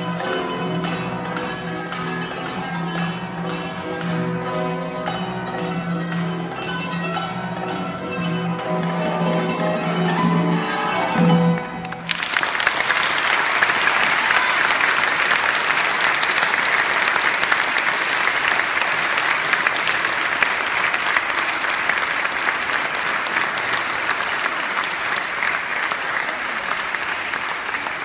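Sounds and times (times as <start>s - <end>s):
audience applauding: 0.0s - 10.2s, 10.9s - 28.0s
plucked qanun notes: 0.0s - 12.1s.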